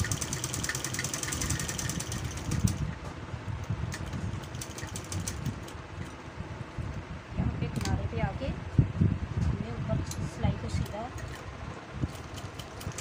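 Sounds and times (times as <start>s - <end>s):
sewing machine stitching: 0.0s - 2.8s.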